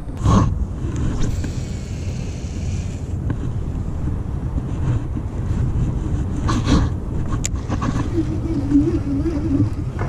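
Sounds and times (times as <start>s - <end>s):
wind buffeting microphone: 0.0s - 10.0s
fabric rubbing on microphone: 3.4s - 9.9s.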